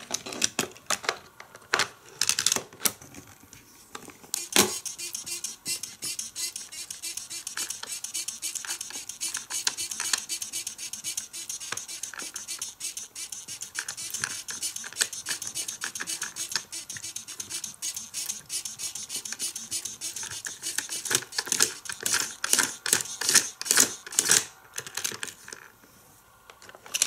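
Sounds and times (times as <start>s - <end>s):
plastic toy parts clacking: 0.0s - 3.2s, 4.4s - 25.7s, 26.6s - 27.0s
quick steady clicking: 4.4s - 24.5s.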